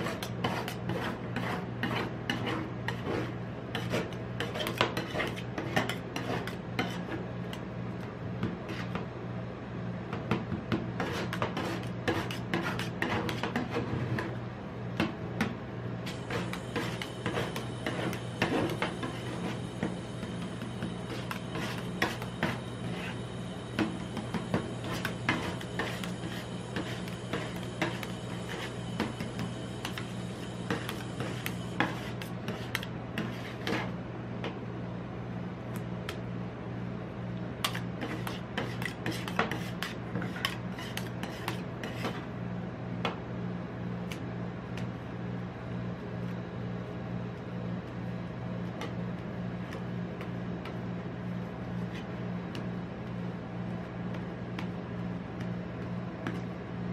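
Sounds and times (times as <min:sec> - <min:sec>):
spatulas scraping: 0:00.0 - 0:07.2, 0:16.1 - 0:23.2, 0:23.8 - 0:34.0, 0:37.6 - 0:42.2.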